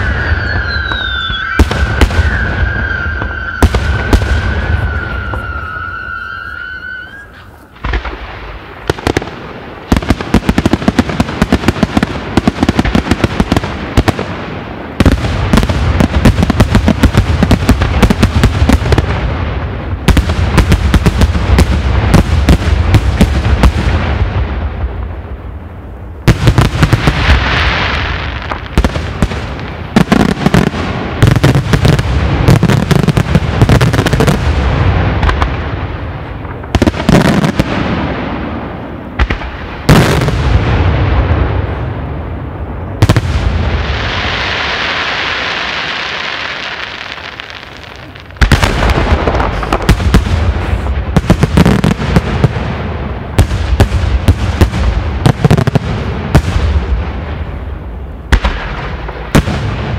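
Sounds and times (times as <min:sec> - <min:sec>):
fireworks hissing: 0:00.0 - 0:08.2, 0:43.8 - 0:52.0.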